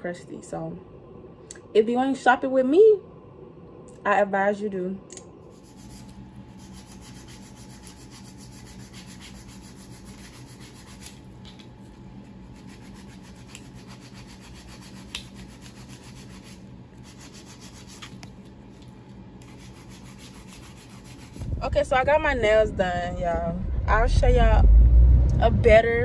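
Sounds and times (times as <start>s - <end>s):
nail file rasping on nails: 5.5s - 11.6s, 12.4s - 18.3s, 19.4s - 21.5s.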